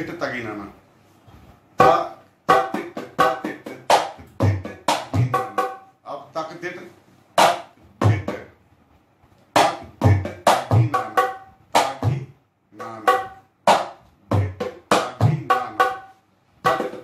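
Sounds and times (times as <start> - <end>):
hand drum playing: 1.8 - 5.8, 9.6 - 12.1, 12.8 - 17.0.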